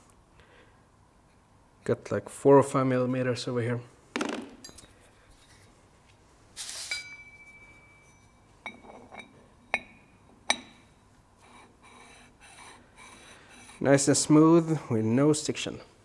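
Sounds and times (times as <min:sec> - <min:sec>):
light metal clinks: 0:04.6 - 0:05.6, 0:06.9 - 0:10.9
metal scraping rub: 0:11.4 - 0:14.0.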